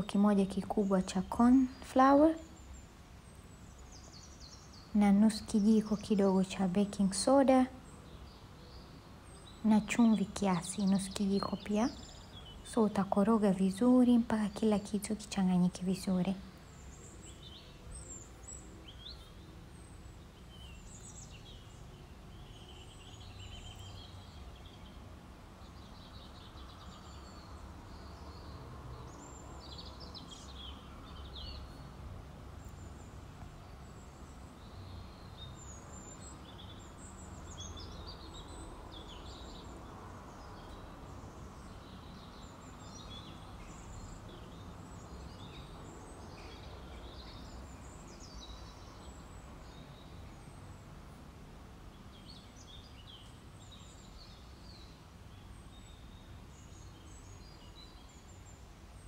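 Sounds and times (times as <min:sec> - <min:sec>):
low room noise rumble: 0:00.0 - 0:59.0
small birds chirping: 0:00.0 - 0:59.0.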